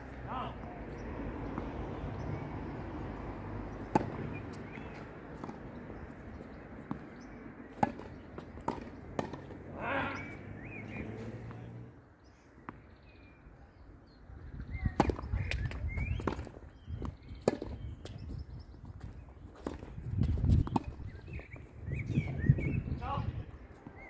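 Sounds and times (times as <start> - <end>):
birds chirping: 0.0 - 24.0
tennis ball struck by rackets: 3.8 - 11.9.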